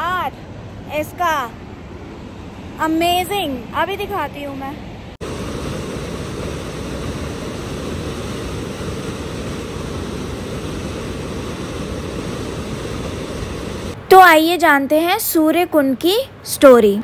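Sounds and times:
waterfall rushing into pool: 5.2s - 14.0s.

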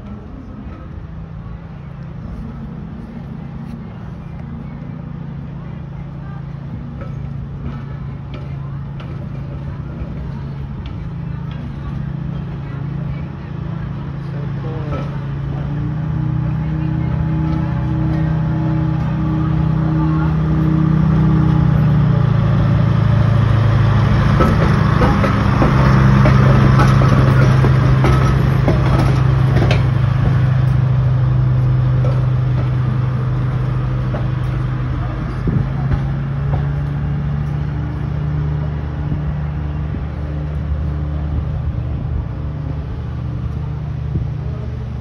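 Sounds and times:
trolley car rolling on track: 0.0s - 45.0s
clicks from wheels: 23.8s - 41.0s.

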